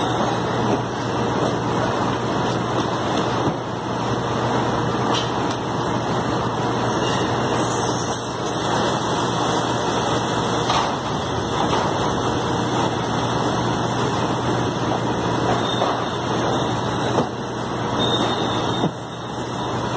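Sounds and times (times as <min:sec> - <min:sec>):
machinery running: 0:08.2 - 0:17.1.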